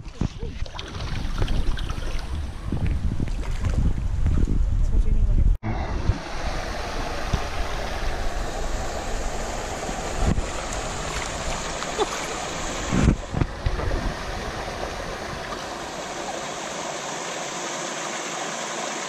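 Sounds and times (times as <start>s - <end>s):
water jets splashing: 6.1s - 19.0s.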